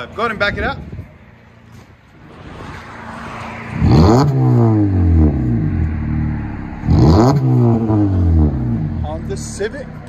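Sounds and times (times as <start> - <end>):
rush of noise: 0.5 - 9.2
car engine revving: 2.2 - 10.0.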